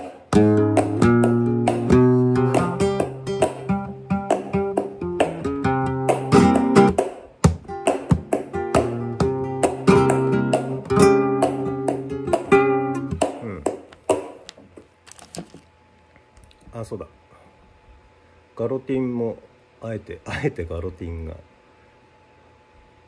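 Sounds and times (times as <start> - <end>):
flamenco guitar playing: 0.0 - 14.5.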